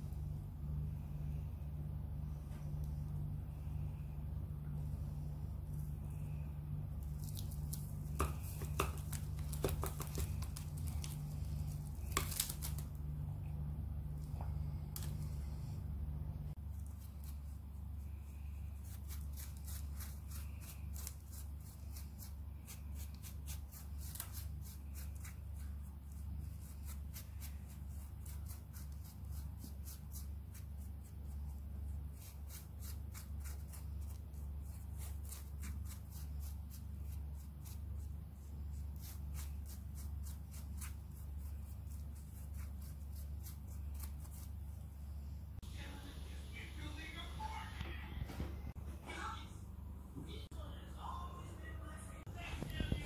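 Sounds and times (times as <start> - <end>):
steady low hum: 0.0 - 53.0
hands rubbing craft doll: 7.0 - 13.0.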